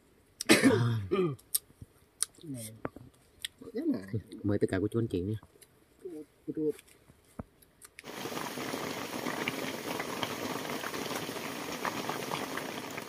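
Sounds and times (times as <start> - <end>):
soup bubbling at a boil: 8.0 - 13.0.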